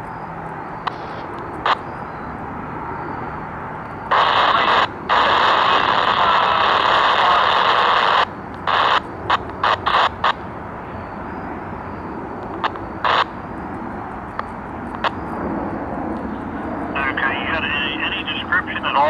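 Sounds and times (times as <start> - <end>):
scanner radio hiss: 0.8 - 2.3, 4.0 - 13.5, 16.3 - 19.0
short bursts of radio static: 0.9 - 1.9, 4.1 - 10.4, 12.6 - 13.4, 16.9 - 19.0.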